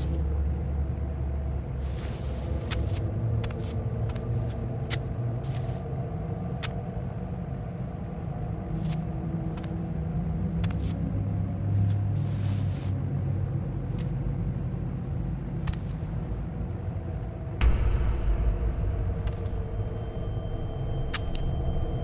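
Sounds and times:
steady low rumble: 0.0 - 12.3, 13.0 - 22.0
held low tones: 17.2 - 22.0.

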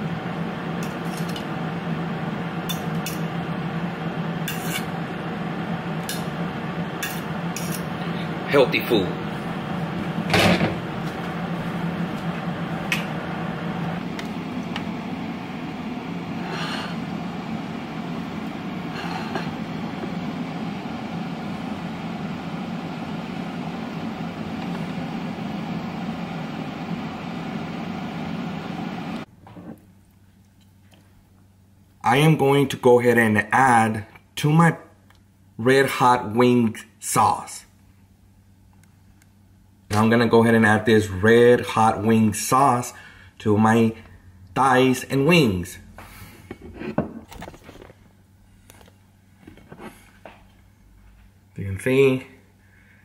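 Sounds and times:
steady low hum: 0.0 - 53.0
fork scraping ceramic plates: 4.5 - 4.9, 7.0 - 7.9.

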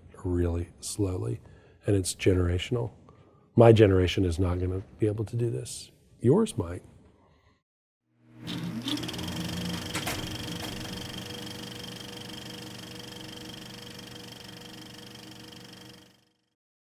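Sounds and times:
steady hum: 8.3 - 16.4
film projector clattering: 8.5 - 16.3.

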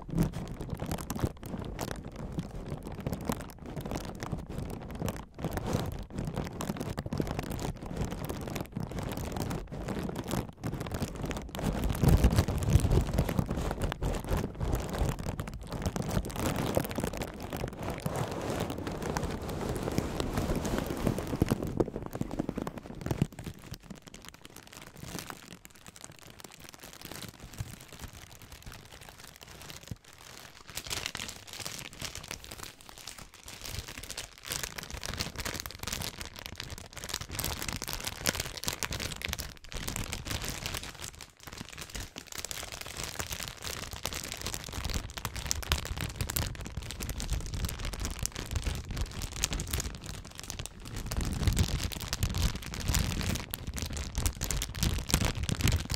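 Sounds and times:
plastic bag crinkling: 0.0 - 55.9
air-cushion packaging rustling: 15.3 - 24.0.

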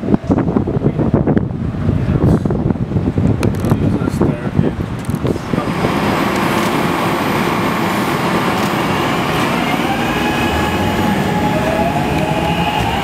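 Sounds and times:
train rumbling: 0.0 - 13.0
train whine: 5.3 - 13.0.

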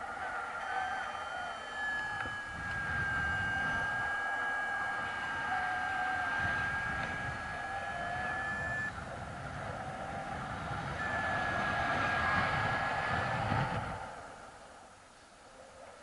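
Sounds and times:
wind rushing over microphone: 0.0 - 14.9
high whistle: 0.2 - 8.9, 10.9 - 13.1.

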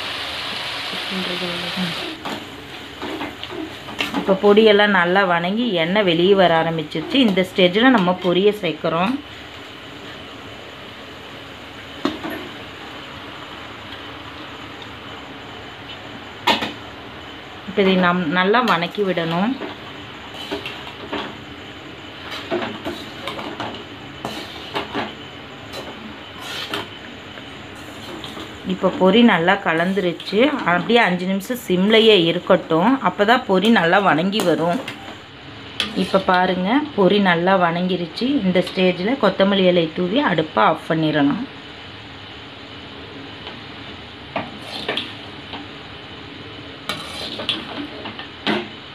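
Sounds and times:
metal spatula scraping a pan: 24.2 - 24.9, 26.4 - 26.9, 35.8 - 36.3, 44.6 - 45.1, 46.8 - 47.9
metal ladle scraping a metal pot: 46.9 - 47.8.

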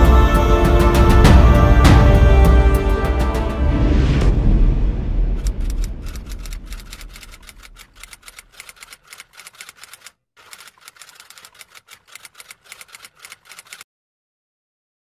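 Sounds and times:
music: 0.0 - 5.1
typewriter keys clicking: 5.4 - 13.8.

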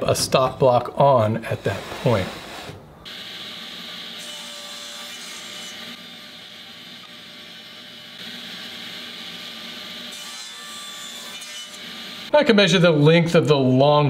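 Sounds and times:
table saw cutting board: 1.5 - 12.3.

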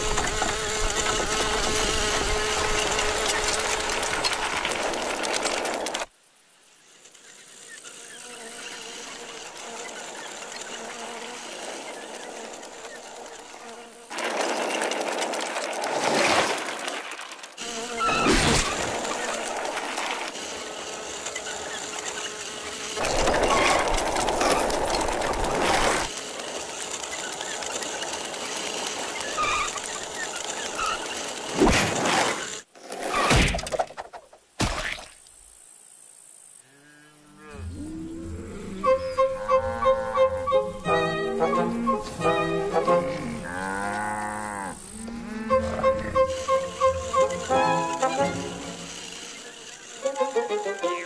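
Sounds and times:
toy car speeding over asphalt: 0.0 - 6.1, 6.9 - 33.2, 45.6 - 51.0
background music: 38.8 - 43.5, 45.5 - 49.1.

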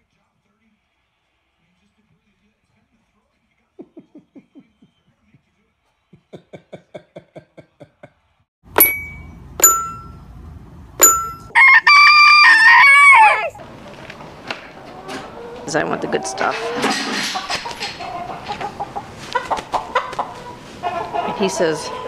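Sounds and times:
toy xylophone notes: 8.7 - 10.2, 11.0 - 11.6
rooster crowing: 11.5 - 13.6.

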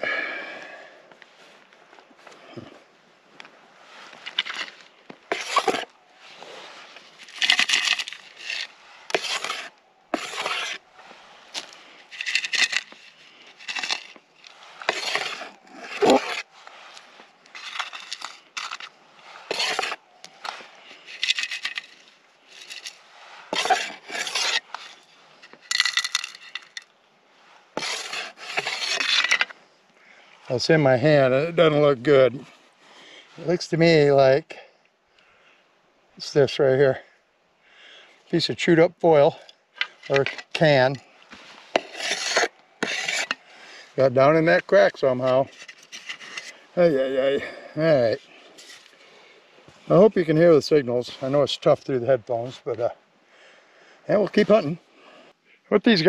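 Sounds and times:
dirt and rocks scraping and rattling: 1.2 - 34.0, 38.4 - 53.0, 54.1 - 54.9.

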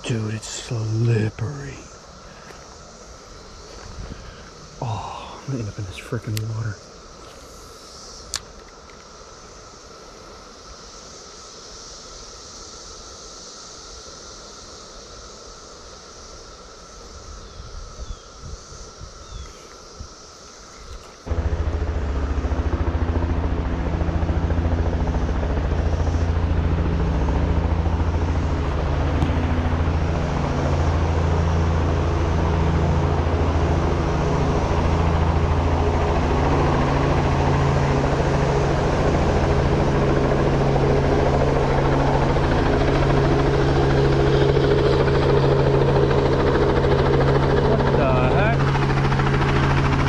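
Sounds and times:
helicopter rotor beating: 0.0 - 9.8, 20.8 - 50.0.

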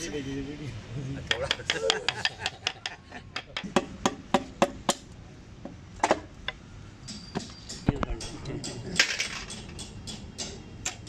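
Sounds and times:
hammer knocking on metal pipe: 1.3 - 5.0.

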